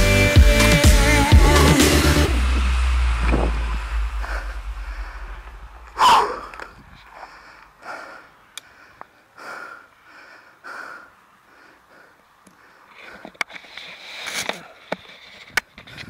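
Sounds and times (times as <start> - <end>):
background music: 0.0 - 4.3
person breathing in puffs: 4.1 - 13.4.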